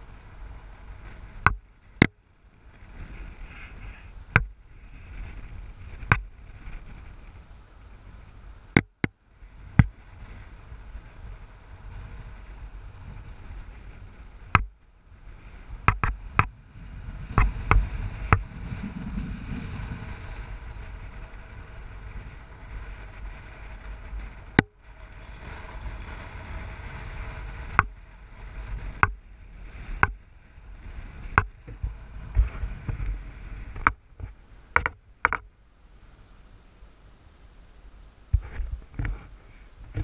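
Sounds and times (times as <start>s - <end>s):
car road rumble: 0.0s - 40.0s
sharp knocks and clicks: 8.8s - 9.2s, 14.5s - 14.8s, 15.8s - 16.6s, 29.0s - 29.2s, 30.0s - 30.2s, 33.8s - 35.5s.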